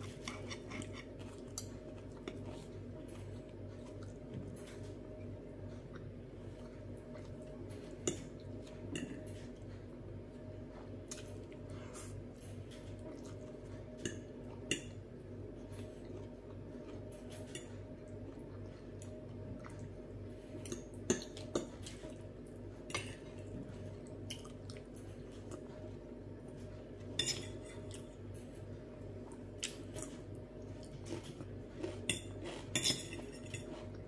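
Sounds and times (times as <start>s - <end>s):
steady low hum: 0.0s - 34.0s
cutlery scraping a glass plate: 32.1s - 33.9s.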